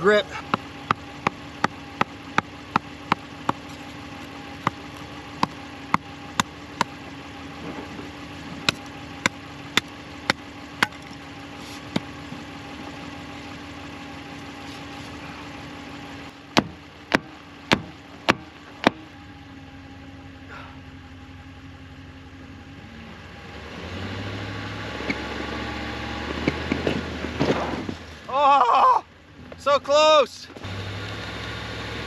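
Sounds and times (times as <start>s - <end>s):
truck engine idling: 0.0s - 32.0s
axe chopping wood: 0.3s - 4.0s, 4.6s - 7.0s, 8.6s - 11.2s, 11.9s - 12.1s, 16.5s - 19.1s.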